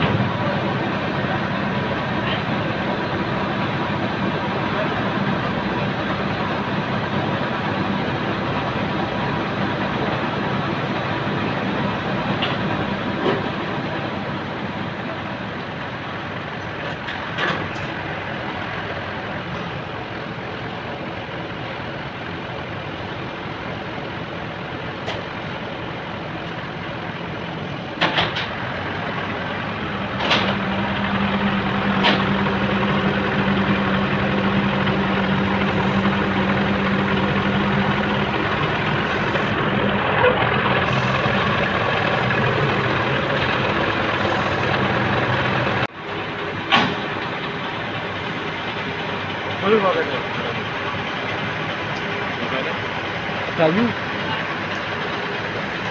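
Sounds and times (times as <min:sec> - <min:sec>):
truck engine running: 0:00.0 - 0:55.9.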